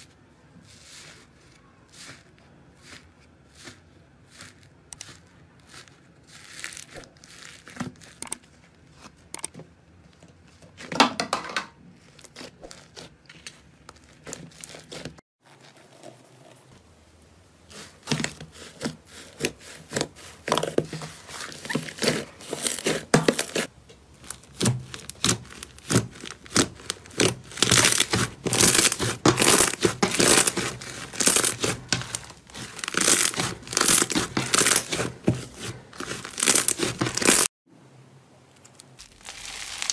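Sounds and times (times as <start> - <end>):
slime crackling and tearing: 2.8 - 8.2, 12.0 - 15.8, 17.7 - 37.5, 38.7 - 39.9.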